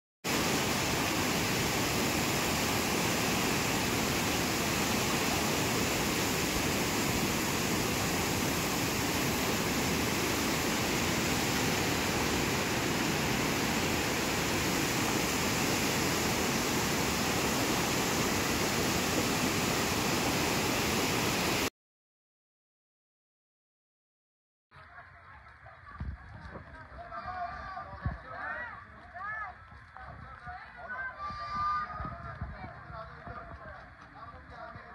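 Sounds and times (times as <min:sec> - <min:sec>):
river water rushing: 0:00.3 - 0:21.7.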